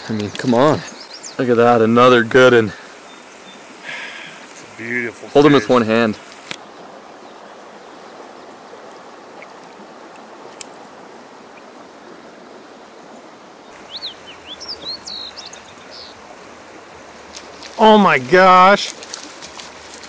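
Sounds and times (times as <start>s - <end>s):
creek running over rocks: 0.0s - 20.0s
bird chirps: 13.8s - 16.2s.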